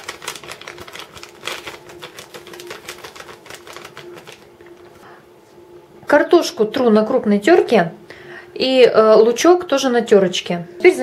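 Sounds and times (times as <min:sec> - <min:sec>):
paper sachet crinkling: 0:00.0 - 0:05.0
faint steady hum: 0:00.0 - 0:11.0.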